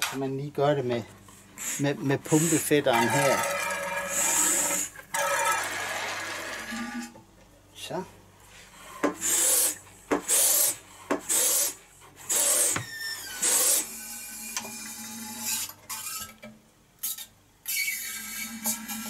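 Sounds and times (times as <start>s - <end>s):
hand suction pump hissing: 1.6s - 2.9s, 9.2s - 12.8s.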